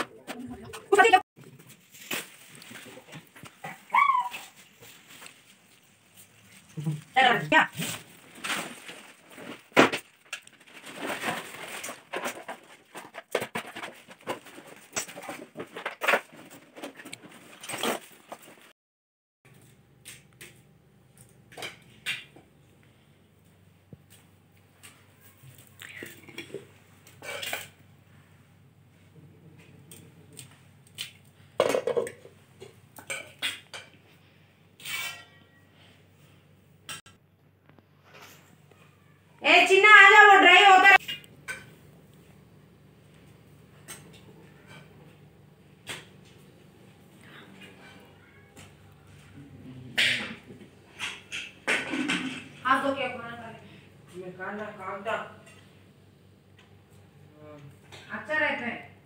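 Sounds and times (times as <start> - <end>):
household items rustling and clattering: 0.0 - 18.7, 23.4 - 27.9, 28.9 - 36.4, 50.0 - 53.1.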